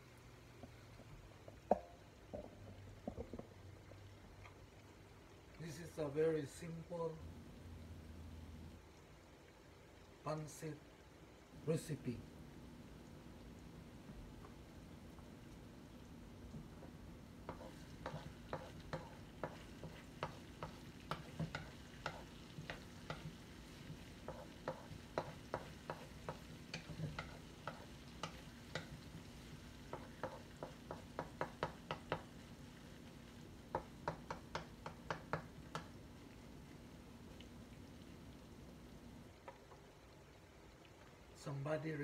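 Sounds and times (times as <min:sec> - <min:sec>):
faint frying sizzle: 0:00.0 - 0:42.0
utensil scraping and knocking pan: 0:17.4 - 0:29.2.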